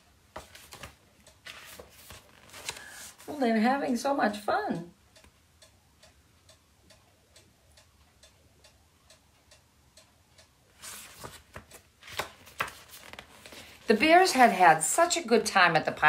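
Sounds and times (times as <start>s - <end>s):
faint regular ticking: 0.0s - 2.8s, 3.8s - 11.9s.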